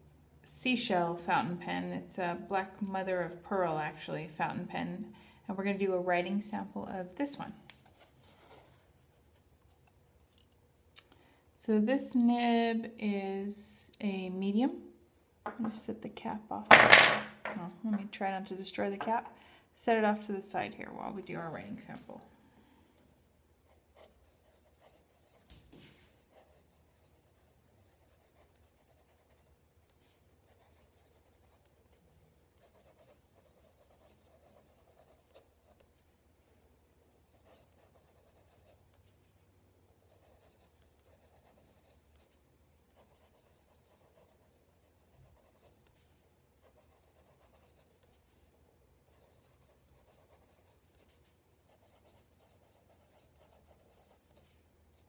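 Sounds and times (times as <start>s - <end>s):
fountain pen scratching on paper: 23.6s - 31.8s, 32.6s - 36.0s, 37.3s - 39.4s, 40.0s - 48.5s, 49.1s - 55.0s.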